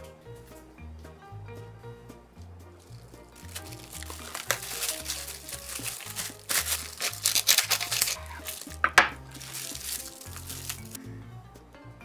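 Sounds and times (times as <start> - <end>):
background music: 0.0 - 12.0
sandwich wrap crinkling: 2.8 - 11.0
knife cutting wrapped sandwich: 2.9 - 11.0.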